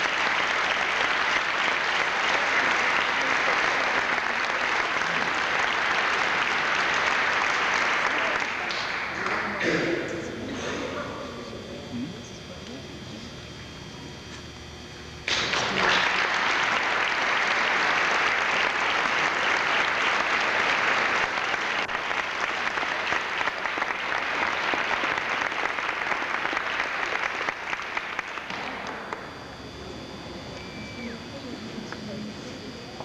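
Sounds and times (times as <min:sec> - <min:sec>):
audience applauding: 0:00.0 - 0:09.8, 0:15.2 - 0:29.6.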